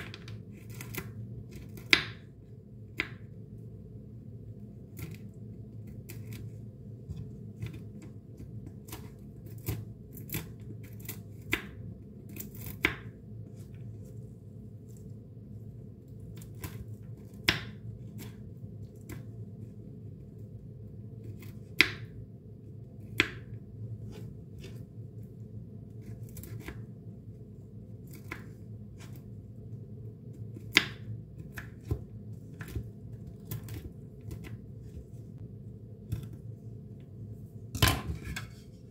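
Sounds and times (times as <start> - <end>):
knife chopping walnuts: 0.0 - 2.3, 2.9 - 3.3, 5.9 - 13.2, 16.4 - 19.3, 23.1 - 24.8, 30.6 - 35.0
steady low hum: 0.0 - 38.9.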